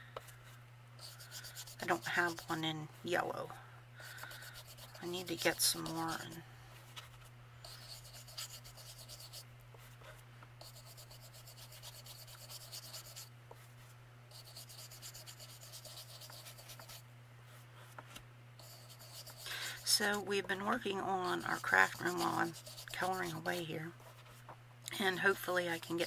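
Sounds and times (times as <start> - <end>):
steady low hum: 0.0 - 26.0
ink blending tool rubbing on paper: 1.0 - 2.6, 4.1 - 6.4, 7.7 - 9.4, 10.6 - 13.3, 14.3 - 17.0, 18.6 - 20.2, 21.2 - 23.7, 25.4 - 26.0.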